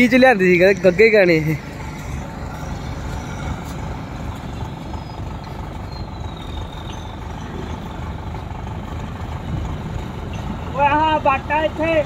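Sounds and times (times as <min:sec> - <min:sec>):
combine harvester diesel engine: 0:00.0 - 0:12.0.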